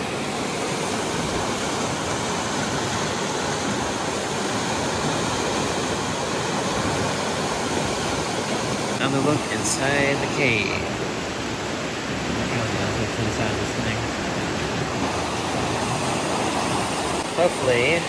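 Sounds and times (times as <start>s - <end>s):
whitewater rushing over rocks: 0.0s - 18.0s.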